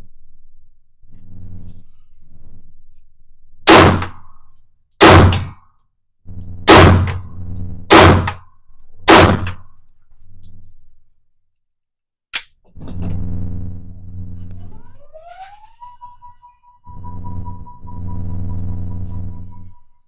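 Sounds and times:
handgun shots in indoor range: 0:03.6 - 0:05.7, 0:06.4 - 0:07.3, 0:07.9 - 0:09.7.

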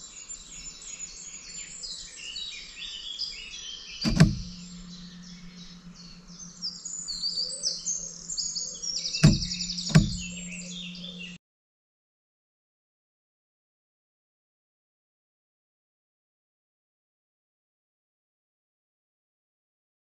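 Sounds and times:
birds chirping and singing: 0:00.0 - 0:11.4
bird trill: 0:00.2 - 0:11.4
low steady hum: 0:04.0 - 0:11.4
sharp knocks: 0:04.1 - 0:05.9, 0:09.2 - 0:10.6.

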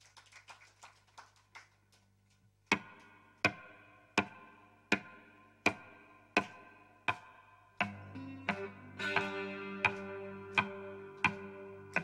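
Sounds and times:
acoustic guitar chord strumming: 0:08.0 - 0:12.0.

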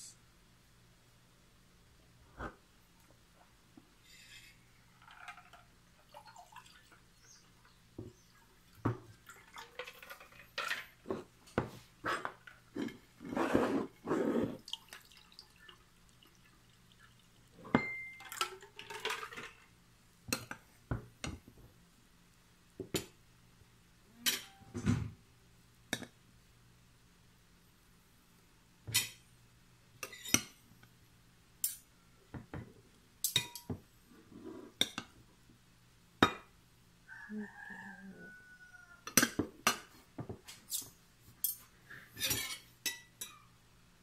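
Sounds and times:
tea pouring into glass: 0:06.0 - 0:07.0, 0:14.6 - 0:17.6
cutlery clinking on dishes: 0:24.2 - 0:24.7, 0:28.9 - 0:29.2, 0:33.2 - 0:33.8, 0:39.1 - 0:41.6, 0:42.2 - 0:43.4.

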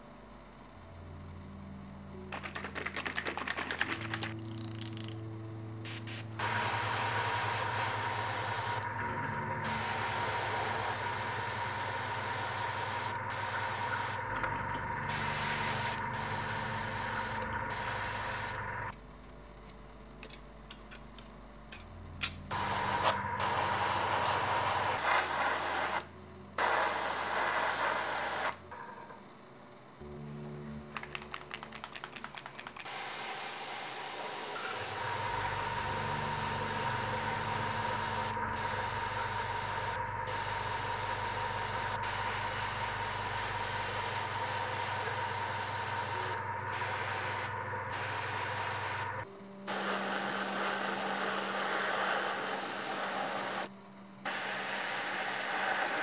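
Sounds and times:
airbrush spraying hiss: 0:05.8 - 0:08.8, 0:22.5 - 0:28.5, 0:49.7 - 0:53.7.

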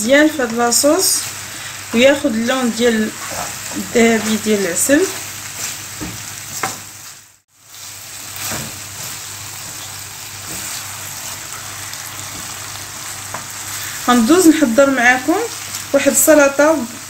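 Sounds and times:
chicken sizzling in a pan: 0:00.0 - 0:17.0
wooden spoon scraping: 0:01.9 - 0:06.8, 0:07.7 - 0:14.0.

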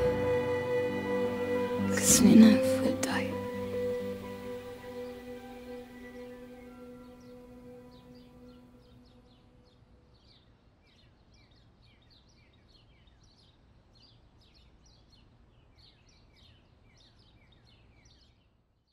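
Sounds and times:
music note: 0:00.0 - 0:09.1
birds chirping: 0:00.0 - 0:18.5.

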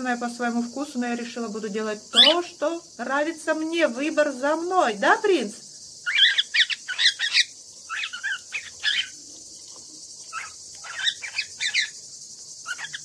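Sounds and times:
cockatiel chirping and whistling: 0:10.3 - 0:11.9, 0:12.7 - 0:13.0.

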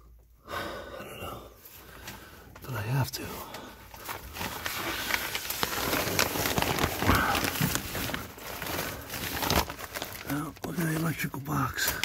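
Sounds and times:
plastic sheeting crinkling: 0:02.7 - 0:12.0.

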